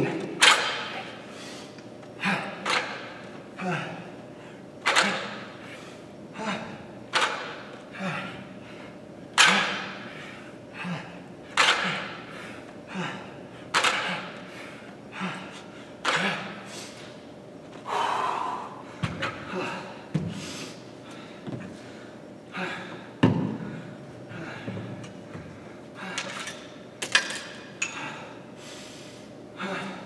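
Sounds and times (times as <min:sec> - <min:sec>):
man breathing hard: 0:01.1 - 0:02.6, 0:07.9 - 0:17.2, 0:17.8 - 0:26.5, 0:27.8 - 0:30.0.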